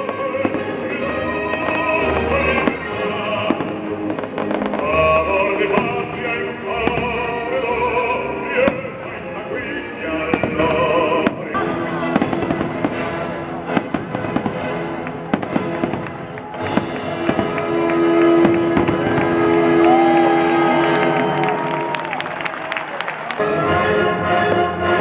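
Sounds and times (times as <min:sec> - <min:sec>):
fireworks banging and crackling: 0:00.0 - 0:07.4, 0:10.3 - 0:22.2
music playing: 0:00.0 - 0:25.0.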